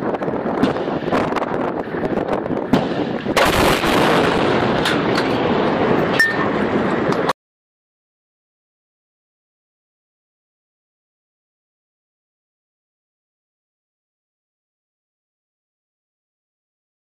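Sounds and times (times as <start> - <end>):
heavy rush of noise: 0.0 - 7.4
gunshots: 2.7 - 5.2
loud crack: 2.7 - 5.8.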